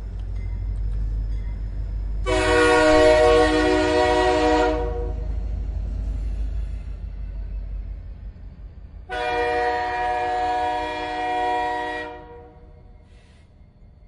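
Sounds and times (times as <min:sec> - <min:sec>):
train rumbling on rails: 0:00.0 - 0:14.0
train horn blast: 0:02.2 - 0:05.3, 0:09.1 - 0:12.8.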